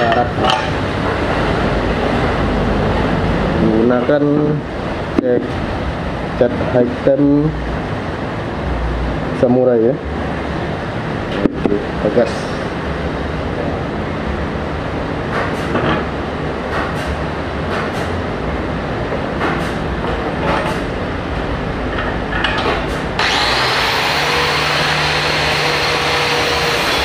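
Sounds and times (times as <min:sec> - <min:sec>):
power tool whining: 0:23.2 - 0:27.0.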